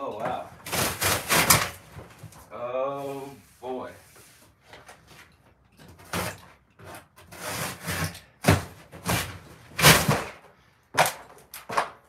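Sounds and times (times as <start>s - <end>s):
cardboard box scraping open: 0.6s - 2.1s, 6.1s - 10.3s.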